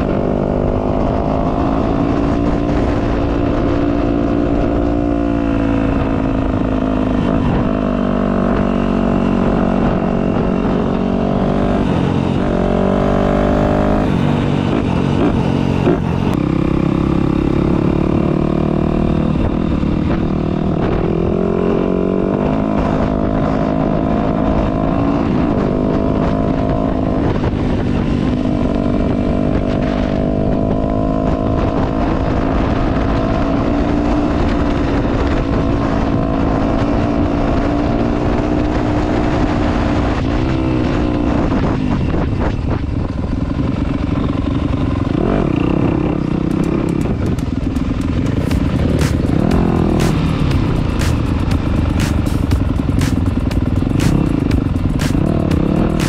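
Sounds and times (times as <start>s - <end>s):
dirt bike engine revving: 0.0s - 27.4s, 43.7s - 56.0s.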